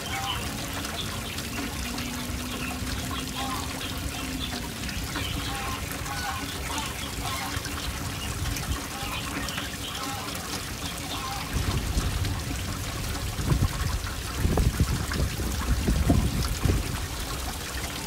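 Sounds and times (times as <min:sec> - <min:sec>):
wind buffeting microphone: 0:11.5 - 0:17.9.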